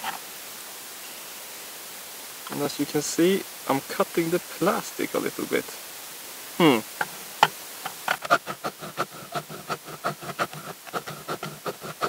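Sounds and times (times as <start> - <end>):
axe scraping on grindstone: 7.8 - 12.0.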